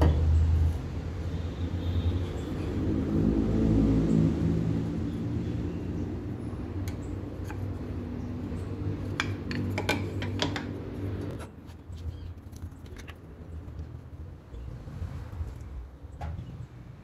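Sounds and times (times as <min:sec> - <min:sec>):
knife scales clicking and tapping: 0:06.8 - 0:11.3.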